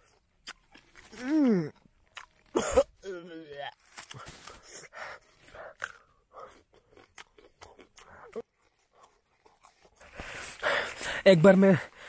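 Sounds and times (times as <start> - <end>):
man chewing fruit: 0.0 - 11.2.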